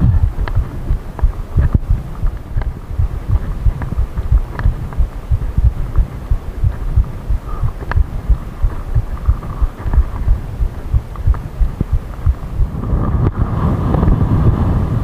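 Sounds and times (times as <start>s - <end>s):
sharp clicks: 0.1s - 12.5s.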